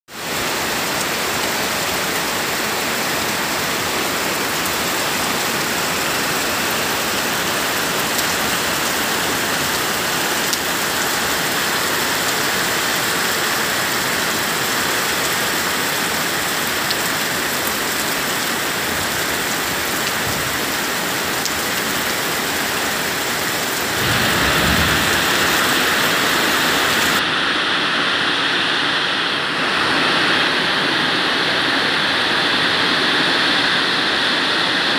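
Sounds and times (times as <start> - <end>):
heavy rain on trees and roof: 0.1 - 34.9
low rumble: 23.8 - 27.2.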